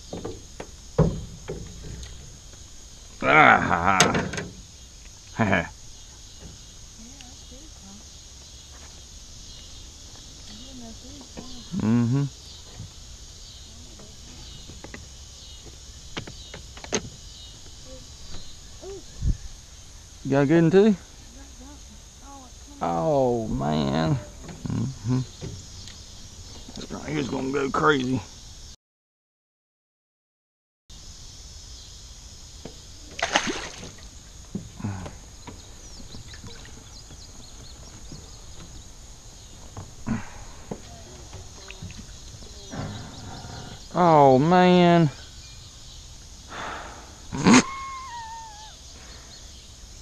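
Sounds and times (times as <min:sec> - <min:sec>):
insects calling: 0:00.0 - 0:28.8, 0:30.9 - 0:50.0
splash in pond water: 0:33.0 - 0:34.2
water sloshing against boat: 0:33.0 - 0:43.1.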